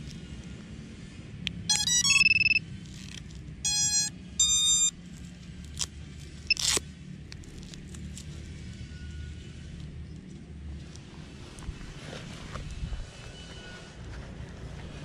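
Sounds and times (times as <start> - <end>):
long arming beeps: 1.7 - 2.6, 3.6 - 5.0.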